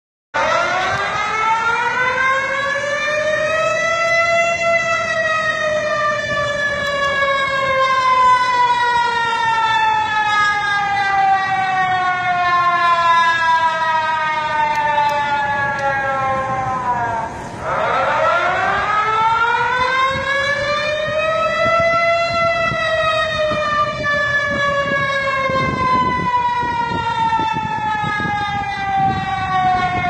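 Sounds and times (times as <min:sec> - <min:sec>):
warning siren wailing: 0:00.4 - 0:30.0.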